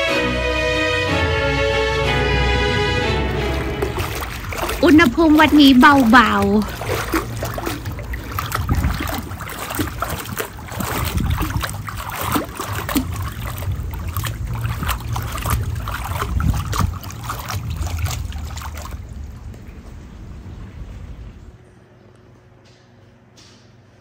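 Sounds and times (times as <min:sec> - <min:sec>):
pool water splashing from kicking: 0:02.0 - 0:21.5
wind rumble on microphone: 0:03.8 - 0:21.6.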